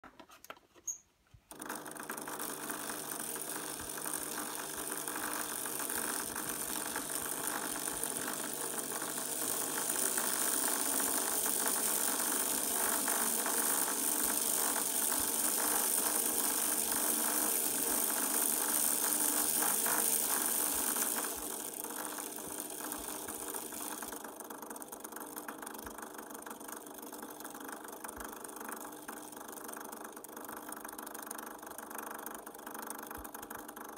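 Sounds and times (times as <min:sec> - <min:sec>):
electric motor whirring: 0:01.5 - 0:25.2.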